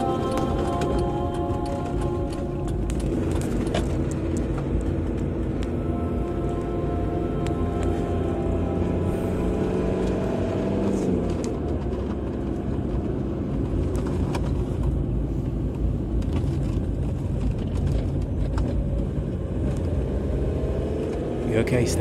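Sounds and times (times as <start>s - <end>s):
music cue held notes: 0.0s - 13.6s
car road and engine rumble: 0.0s - 22.0s.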